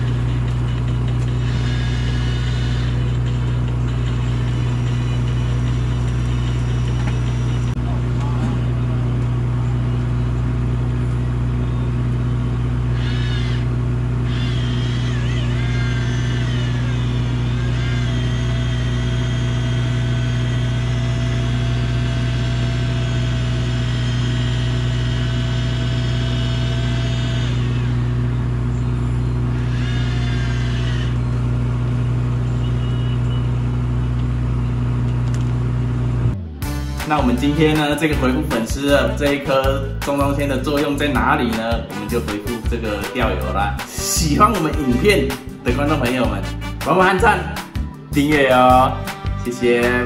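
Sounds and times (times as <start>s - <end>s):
electric fishing reel whining: 0.0s - 7.7s, 12.0s - 33.0s
boat engine drone: 0.0s - 50.0s.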